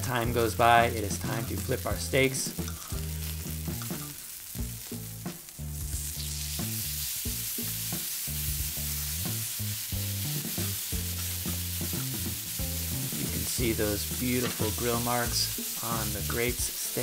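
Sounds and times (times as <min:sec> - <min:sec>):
steaks sizzling on a grill: 0:00.0 - 0:17.0
steak flipped with metal tongs: 0:02.5 - 0:05.1, 0:05.8 - 0:16.5.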